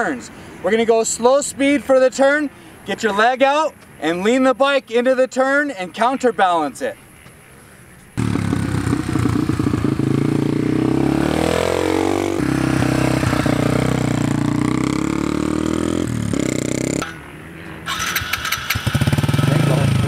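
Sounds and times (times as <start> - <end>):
dirt bike engine accelerating: 8.2 - 20.0.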